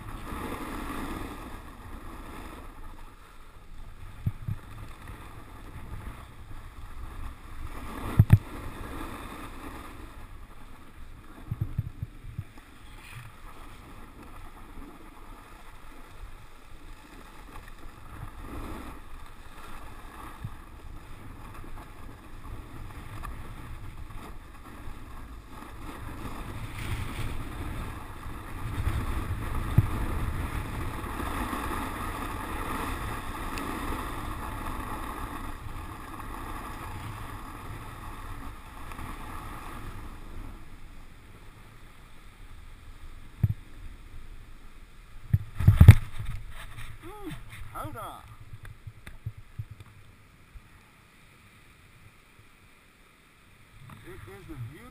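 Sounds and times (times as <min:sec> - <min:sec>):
wind rumbling on microphone: 0:00.0 - 0:52.2, 0:53.6 - 0:54.9
snowboard scraping over snow: 0:00.0 - 0:54.9.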